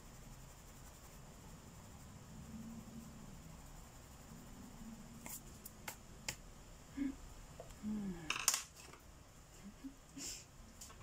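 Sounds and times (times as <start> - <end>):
wooden pencils clattering: 8.3 - 9.0.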